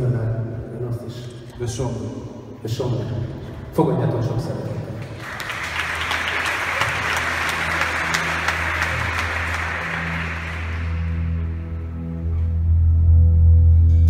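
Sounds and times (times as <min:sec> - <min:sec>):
audience applauding: 0:04.9 - 0:11.8.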